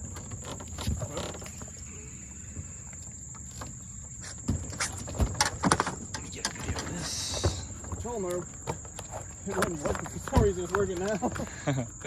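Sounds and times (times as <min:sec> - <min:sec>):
outdoor background noise: 0:00.0 - 0:12.0
knocks and taps on boat: 0:04.4 - 0:11.5.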